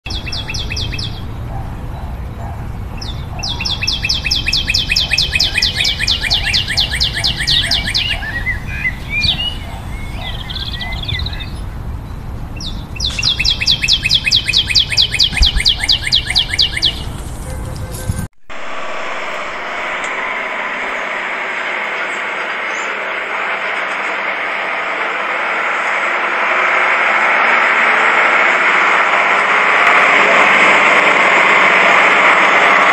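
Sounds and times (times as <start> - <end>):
bird trilling chirps: 0.1 - 2.2, 3.0 - 17.2
low outdoor rumble: 0.1 - 13.8, 14.9 - 32.9.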